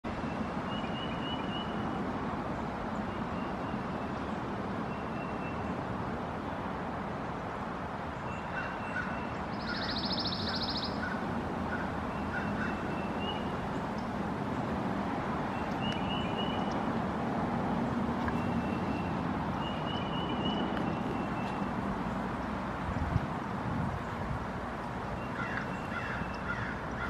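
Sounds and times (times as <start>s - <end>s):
steady background noise: 0.0s - 27.0s
small birds chirping: 8.2s - 14.1s, 15.5s - 16.9s, 18.2s - 22.3s.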